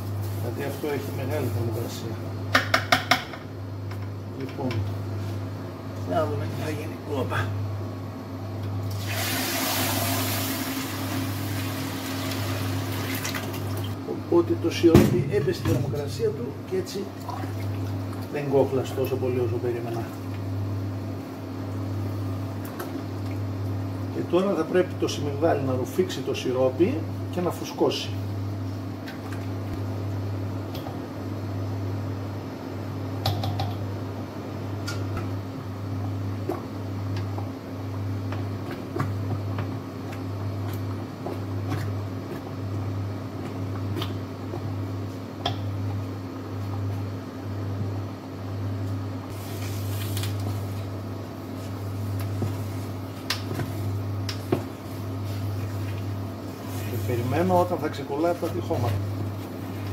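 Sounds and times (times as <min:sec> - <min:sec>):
induction hob humming: 0:00.0 - 0:59.9.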